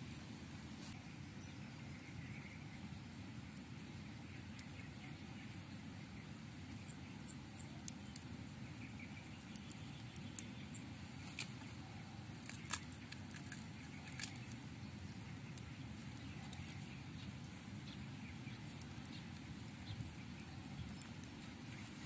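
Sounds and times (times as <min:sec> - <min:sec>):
low outdoor rumble: 0:00.0 - 0:22.0
seed pods cracking: 0:12.3 - 0:14.6.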